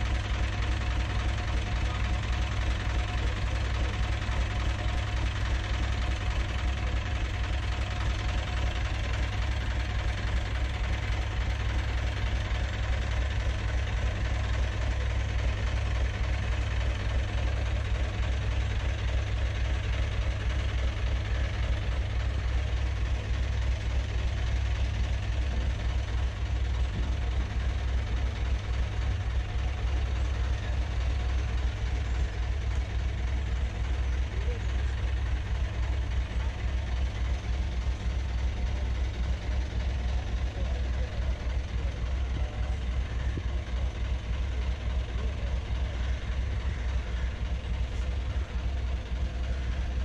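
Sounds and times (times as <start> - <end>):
boat diesel engine running: 0.0 - 50.0.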